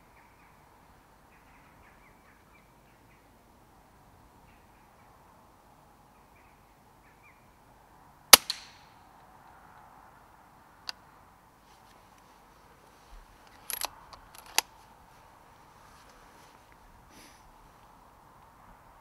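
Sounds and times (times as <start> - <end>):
air rifle shot: 8.4 - 8.8
rifle action clicks: 13.5 - 14.7.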